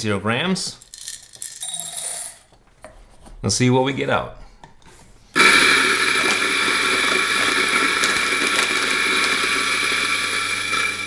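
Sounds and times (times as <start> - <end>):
beans grinding through burrs: 5.4 - 11.0
coffee grinder motor whine: 5.4 - 11.0.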